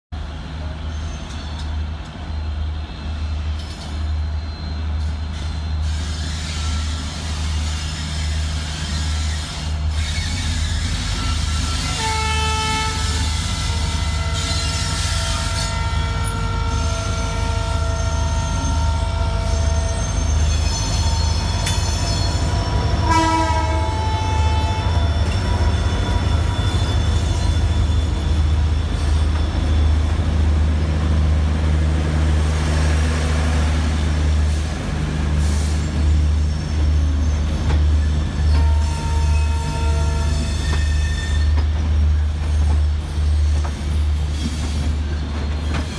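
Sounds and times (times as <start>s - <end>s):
diesel locomotive engine rumble: 0.1s - 45.9s
train air horn: 11.4s - 20.0s, 23.0s - 25.2s, 38.6s - 41.5s.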